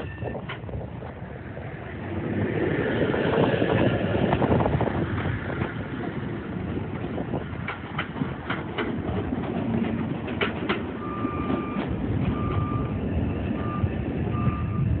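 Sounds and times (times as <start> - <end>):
high electronic beep: 0.0 - 0.4
subway train rumbling: 0.0 - 15.0.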